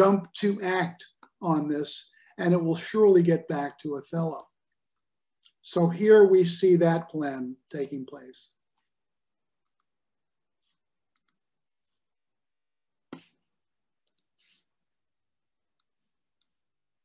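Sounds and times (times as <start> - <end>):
computer mouse clicks: 9.6 - 10.0, 11.1 - 11.4, 14.0 - 14.4.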